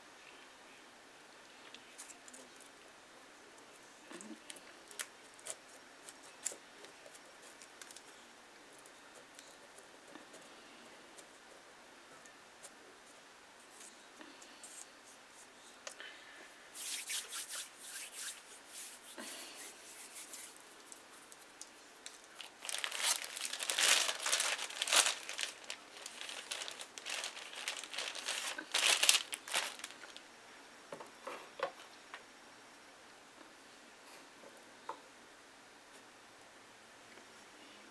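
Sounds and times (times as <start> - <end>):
plastic bag crinkling: 22.0 - 30.2.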